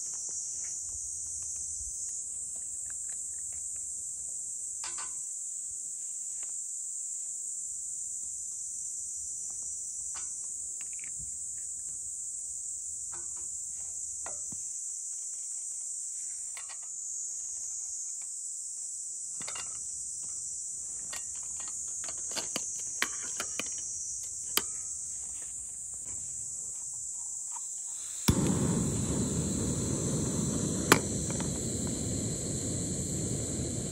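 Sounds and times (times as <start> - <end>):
insect chorus: 0.0 - 33.9
gas stove burning rush: 27.9 - 33.9
gas stove lighting click: 28.1 - 33.9.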